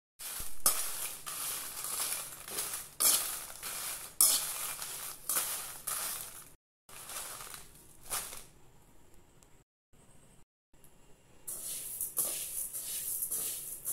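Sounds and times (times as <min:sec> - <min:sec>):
metal spoon scraping chillies in pan: 0:00.2 - 0:08.5, 0:11.5 - 0:13.9.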